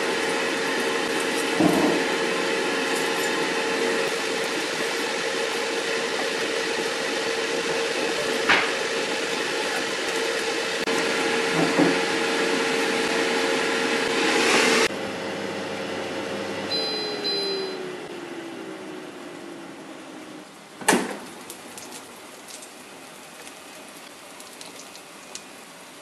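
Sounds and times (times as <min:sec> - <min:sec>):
air fryer fan whirring: 0:00.0 - 0:21.0
short high electronic beeps: 0:16.7 - 0:17.8.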